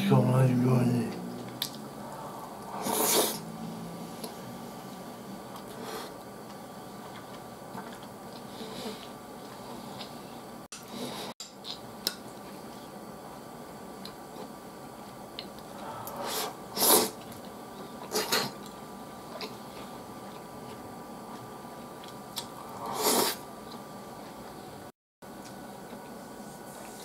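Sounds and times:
loud breathy noises: 1.9 - 3.7, 15.7 - 16.6.

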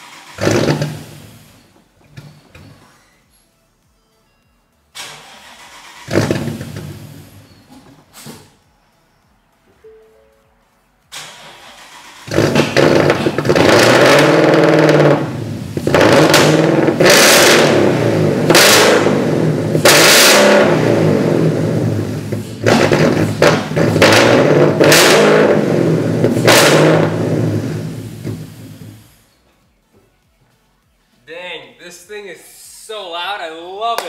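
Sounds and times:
car engine revving: 0.0 - 1.6, 5.0 - 7.5, 11.1 - 29.2
car engine starting: 0.0 - 2.2, 4.9 - 8.6, 11.1 - 29.3.

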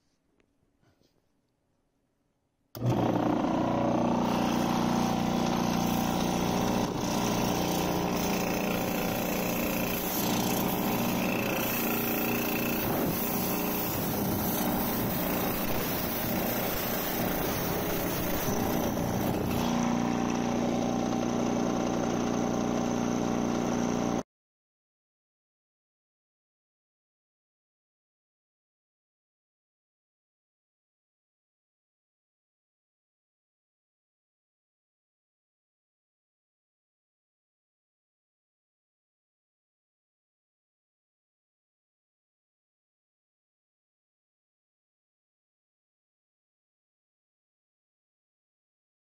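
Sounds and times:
compressor motor humming and hissing: 2.8 - 24.2.

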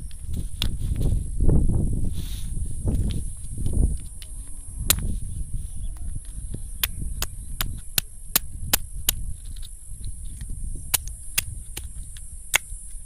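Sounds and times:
stone knocking on snail shell: 10.9 - 12.8.

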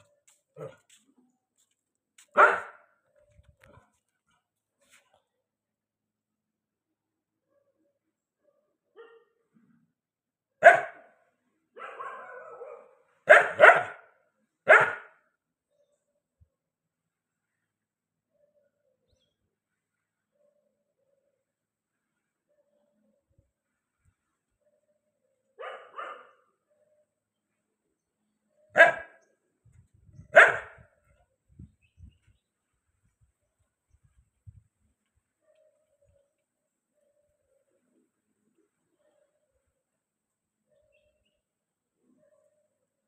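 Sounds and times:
dog barking: 0.6 - 0.9, 2.3 - 3.0, 8.4 - 9.4, 10.6 - 15.2, 25.6 - 26.6, 28.7 - 29.2, 30.3 - 30.9.

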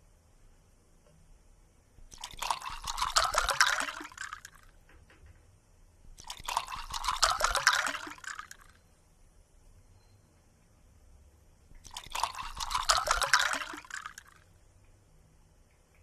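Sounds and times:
cat lapping water: 2.1 - 4.7, 6.2 - 8.6, 11.8 - 14.4.

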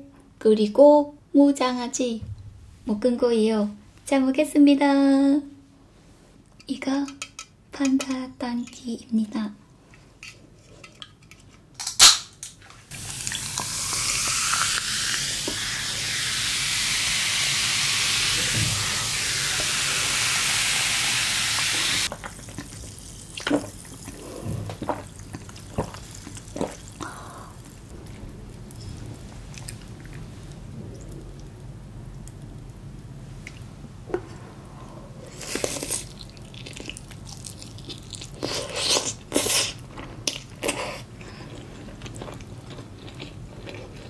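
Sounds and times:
soda can popping open: 11.8 - 12.5
soda fizzing hiss: 12.9 - 22.1.

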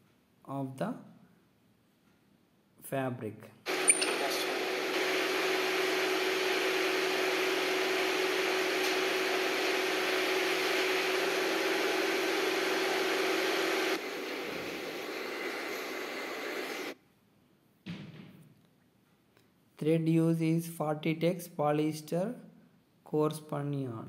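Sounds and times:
whirring machine hum: 3.7 - 17.0.

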